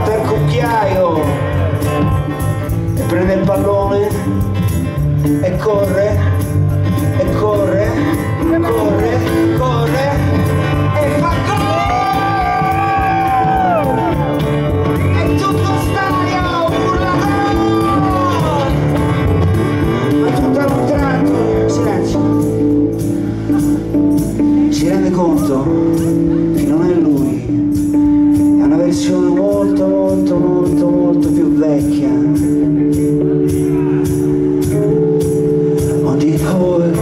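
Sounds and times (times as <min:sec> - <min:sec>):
rock band playing live: 0:00.0 - 0:37.0
man singing long held notes: 0:07.2 - 0:14.2, 0:15.1 - 0:19.1, 0:19.8 - 0:22.5, 0:24.5 - 0:27.7, 0:35.7 - 0:37.0.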